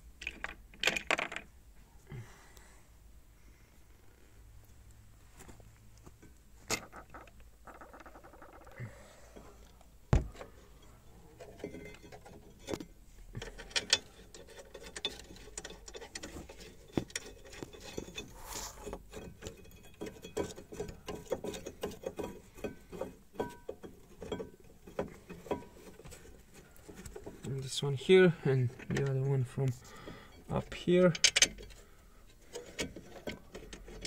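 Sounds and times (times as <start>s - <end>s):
small metallic clicks and knocks: 0.2s - 1.5s, 5.9s - 27.8s, 28.4s - 34.0s
metal scrape: 13.4s - 24.4s.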